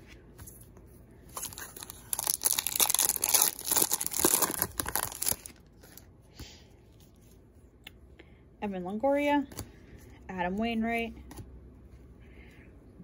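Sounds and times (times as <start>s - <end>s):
faint handling of cards: 0.0s - 8.2s, 9.2s - 13.0s
foil wrapper crinkling: 1.3s - 6.1s.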